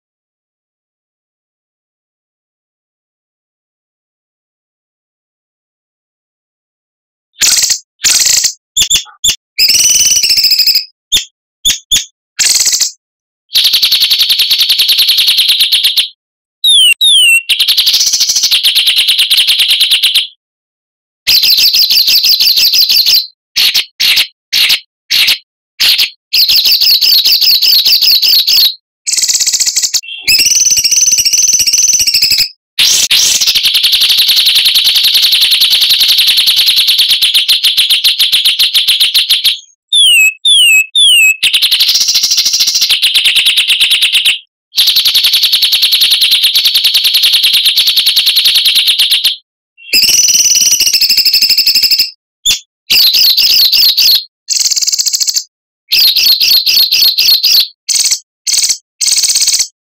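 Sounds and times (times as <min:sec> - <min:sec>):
descending whistled bird notes: 0:07.4 - 0:13.0, 0:16.6 - 0:18.2, 0:26.0 - 0:33.4, 0:39.5 - 0:41.4, 0:49.8 - 0:53.9
songbird trills and chirps: 0:07.4 - 0:13.0, 0:16.6 - 0:17.6, 0:26.4 - 0:32.5, 0:39.7 - 0:41.4.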